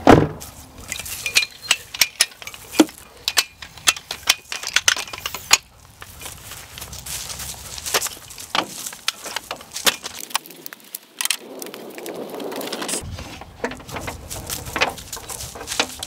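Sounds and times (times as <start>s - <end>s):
metal ladder clicks and knocks: 0.0s - 6.3s, 7.8s - 10.4s, 12.8s - 16.0s
rustling noise: 0.3s - 16.0s.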